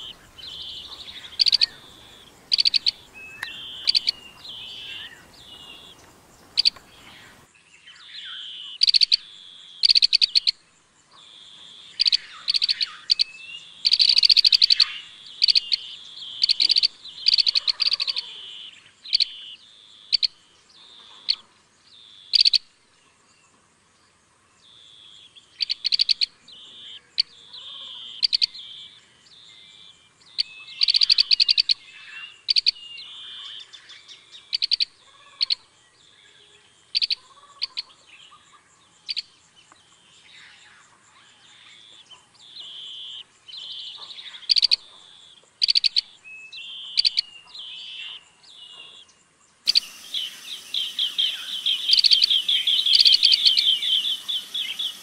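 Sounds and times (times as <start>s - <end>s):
birds chirping trills: 0.0s - 7.5s, 49.7s - 55.0s.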